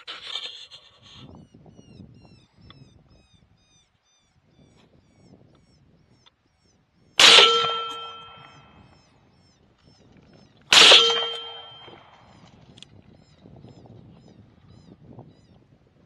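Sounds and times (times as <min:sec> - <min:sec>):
rifle shots: 0:07.2 - 0:08.7, 0:10.7 - 0:12.2.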